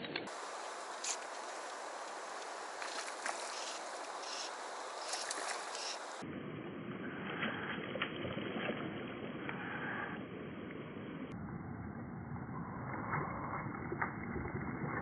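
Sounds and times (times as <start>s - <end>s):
river water running: 0.3s - 6.2s.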